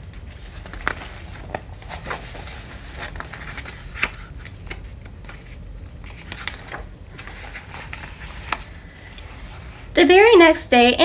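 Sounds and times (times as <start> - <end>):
book pages rustling: 0.0 - 9.9
low steady hum: 0.0 - 11.0.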